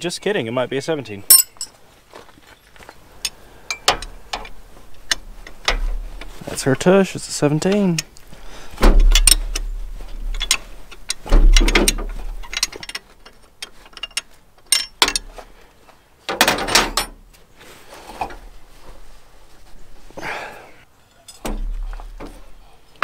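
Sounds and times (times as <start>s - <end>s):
wrench scraping clanks: 1.3s - 1.7s, 10.4s - 15.3s
wrenches clicking on metal: 10.4s - 15.3s.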